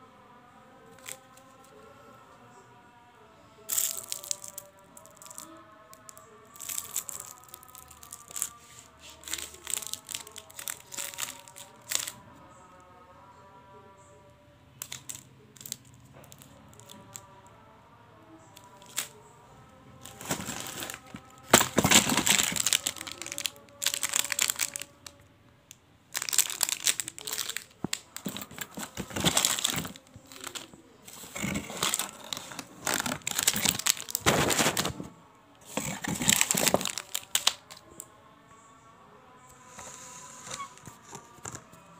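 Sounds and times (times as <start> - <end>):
plastic wrappers crinkling: 0.9 - 1.4, 3.7 - 12.2, 14.8 - 17.2, 18.6 - 19.2, 20.0 - 25.2, 26.1 - 37.8.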